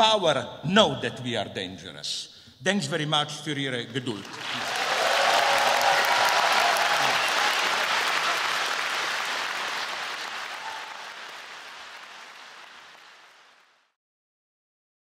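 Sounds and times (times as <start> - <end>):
large audience applauding: 4.0 - 13.9.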